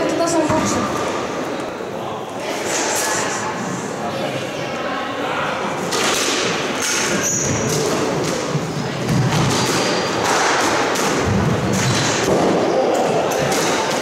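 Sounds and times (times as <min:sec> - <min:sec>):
shoes squeaking on wooden floor: 0:07.1 - 0:08.7.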